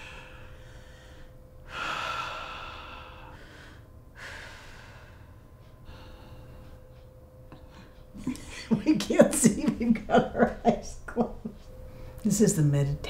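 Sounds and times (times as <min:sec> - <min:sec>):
deep breaths: 0:00.0 - 0:08.1.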